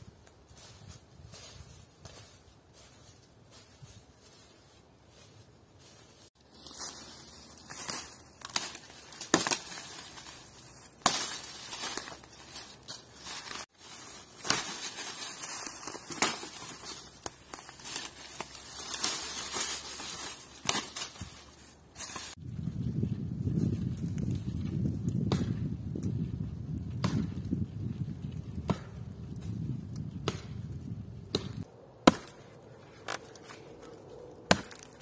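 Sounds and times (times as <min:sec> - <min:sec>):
twigs and leaves crunching: 0:00.0 - 0:22.5, 0:31.3 - 0:35.0
twigs snapping: 0:06.4 - 0:22.4, 0:31.3 - 0:35.0.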